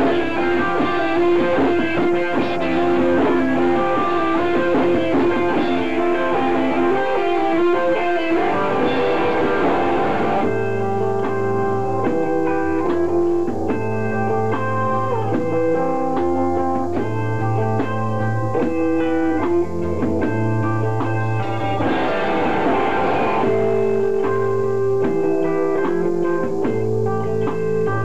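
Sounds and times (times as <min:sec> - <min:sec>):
bass line: 0:00.0 - 0:12.7, 0:19.5 - 0:25.2
drums: 0:00.0 - 0:28.0
electric guitars sustained chords: 0:00.0 - 0:28.0.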